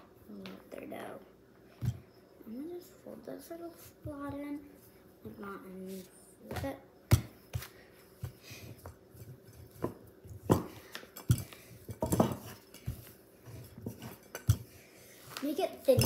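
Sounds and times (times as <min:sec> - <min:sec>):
utensils knocking on countertop: 0:09.8 - 0:13.0.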